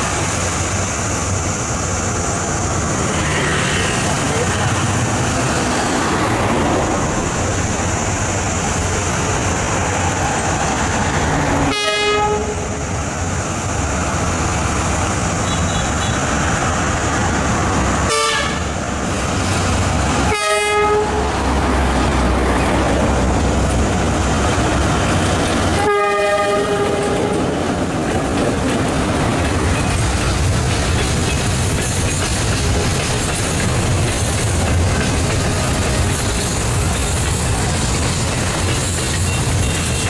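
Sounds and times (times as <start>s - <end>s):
locomotive engine rumbling: 0.0s - 40.0s
locomotive horn blasts: 11.7s - 12.8s, 18.1s - 18.7s, 20.3s - 21.3s, 25.8s - 27.4s
train wagons rolling: 13.2s - 40.0s.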